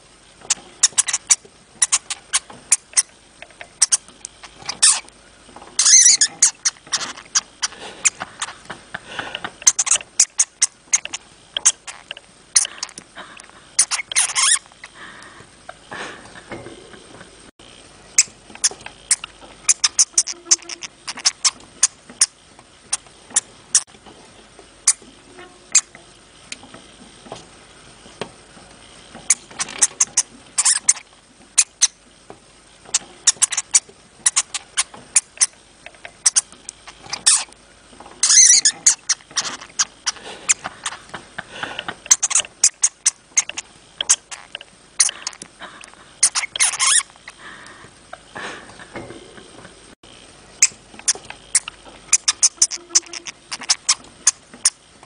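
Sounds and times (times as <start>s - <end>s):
hamster clicks and squeaks: 0.4s - 5.1s, 5.8s - 8.6s, 9.6s - 13.0s, 13.8s - 14.8s, 18.1s - 23.9s, 24.8s - 26.8s, 29.2s - 32.0s, 32.9s - 37.6s, 38.2s - 41.1s, 42.0s - 45.5s, 46.2s - 47.4s, 50.6s - 54.8s.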